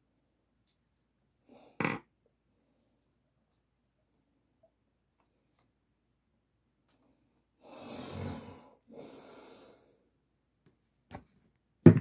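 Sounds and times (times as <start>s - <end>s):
puffs of breath: 7.6s - 10.1s.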